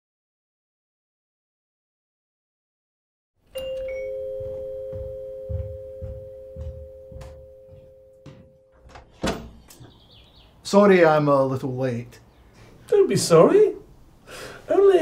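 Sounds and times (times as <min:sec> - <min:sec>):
electric doorbell two-tone chime: 0:03.5 - 0:08.8
soft footsteps: 0:03.6 - 0:10.0
door latch clicks and clack: 0:08.8 - 0:09.8.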